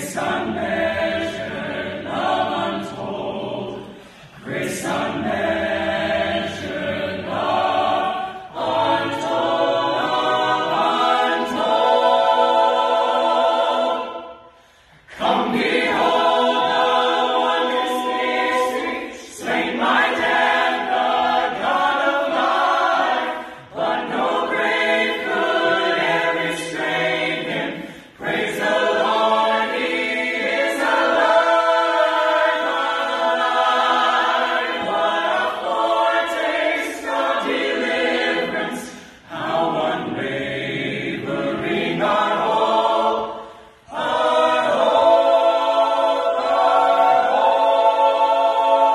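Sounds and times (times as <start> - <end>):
choir singing in harmony: 0.0 - 48.9
singers breathing: 3.8 - 4.4, 14.3 - 15.2, 27.7 - 28.2, 38.8 - 39.3, 43.3 - 43.9.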